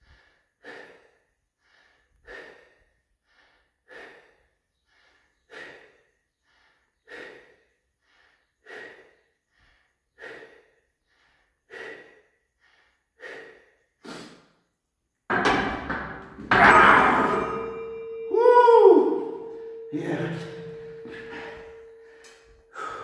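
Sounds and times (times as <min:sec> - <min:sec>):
man breathing forcefully: 0:00.0 - 0:18.2, 0:19.2 - 0:23.0
barbell clattering down: 0:15.3 - 0:18.3
metal bar clanging: 0:15.3 - 0:22.4.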